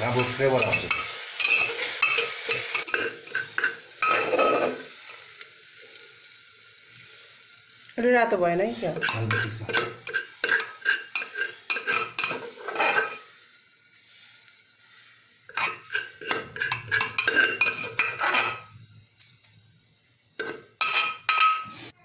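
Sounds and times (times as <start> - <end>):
metal spoon scraping steel bowl: 8.9 - 13.2, 15.6 - 18.7.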